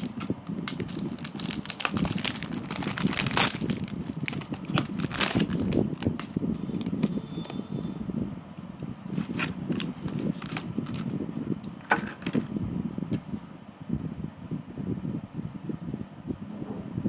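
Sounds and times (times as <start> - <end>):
plastic tray crackling: 0.0 - 7.1, 9.2 - 11.1, 11.8 - 12.5
steady low hum: 0.0 - 17.0.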